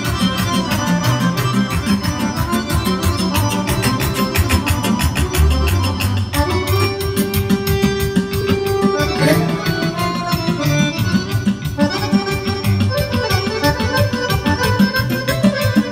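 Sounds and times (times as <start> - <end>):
accordion dance tune: 0.0 - 15.9
quick steady beat: 0.0 - 15.9.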